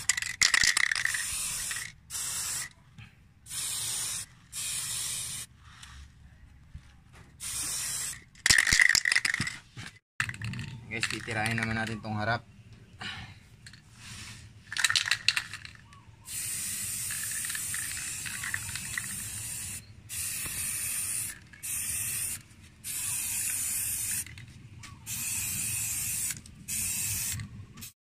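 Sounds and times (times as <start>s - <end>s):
spray can rattle: 0.0s - 2.7s, 3.5s - 5.5s, 7.4s - 11.8s, 14.7s - 24.4s, 25.1s - 27.9s
aerosol spray can hissing: 1.1s - 2.7s, 3.5s - 5.5s, 7.4s - 8.2s, 16.3s - 24.3s, 25.1s - 27.9s.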